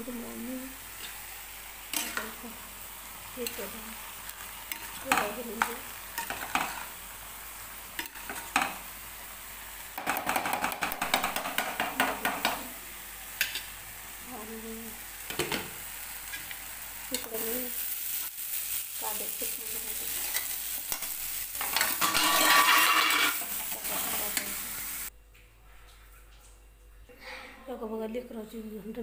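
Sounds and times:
frying sizzle: 0.0s - 25.2s.

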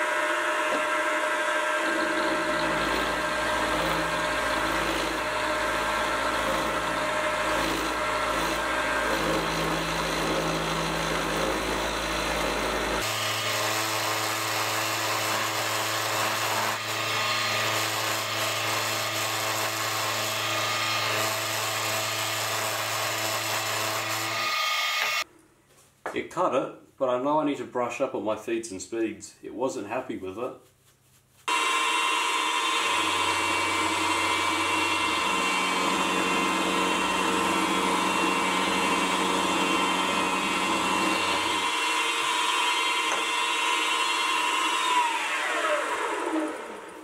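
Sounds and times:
milling machine motor whine: 0.0s - 14.5s, 31.5s - 47.0s
end mill grinding steel: 0.0s - 25.2s, 31.5s - 47.0s.

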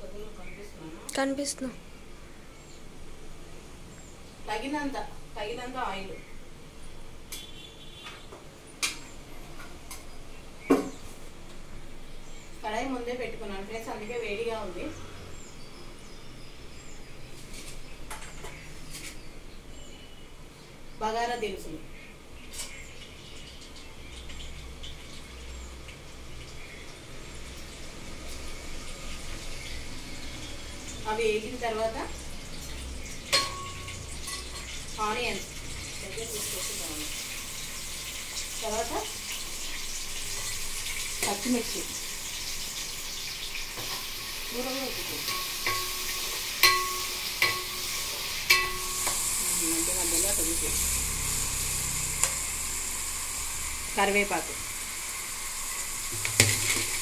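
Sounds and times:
spices frying in hot oil: 0.0s - 57.0s
ladle clinking on pan: 45.2s - 47.9s, 48.5s - 49.1s.

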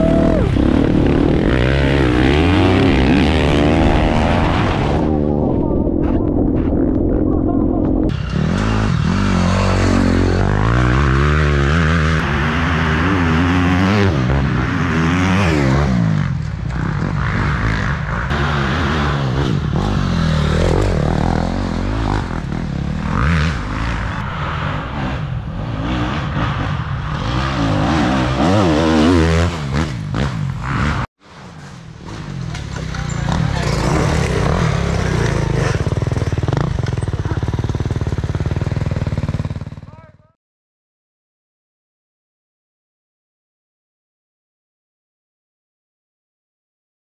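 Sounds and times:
dirt bike engines revving: 0.0s - 5.5s, 7.7s - 40.3s
bikes passing close by: 8.1s - 40.0s.

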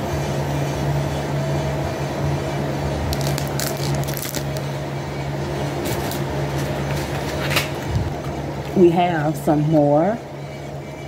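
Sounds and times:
fan humming: 0.0s - 11.0s
packaging crinkling: 3.1s - 4.7s, 5.8s - 6.3s.

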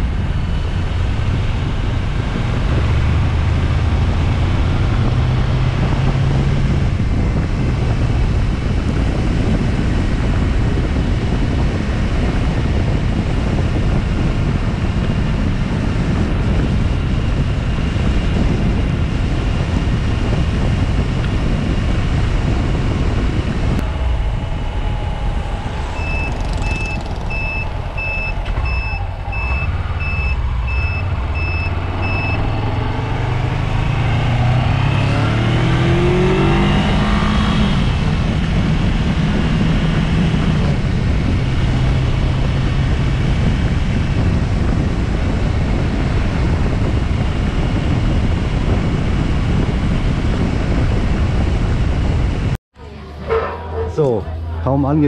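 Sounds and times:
engine rumble: 0.0s - 55.0s
engine revving up: 0.6s - 8.3s, 23.8s - 44.8s
vehicle warning beeper: 25.7s - 32.6s.

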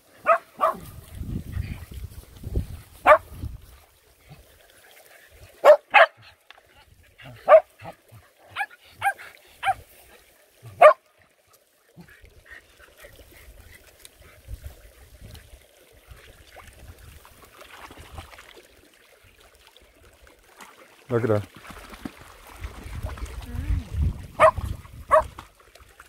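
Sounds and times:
dog barking: 0.2s - 0.8s, 3.0s - 3.3s, 5.6s - 6.2s, 7.4s - 7.7s, 8.5s - 9.8s, 10.8s - 11.0s, 24.4s - 25.3s.

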